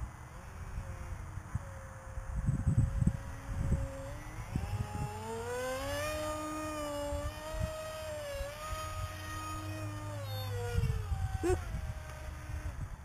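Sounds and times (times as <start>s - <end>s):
model plane motor whine: 0.0s - 13.0s
wind buffeting microphone: 0.6s - 13.0s.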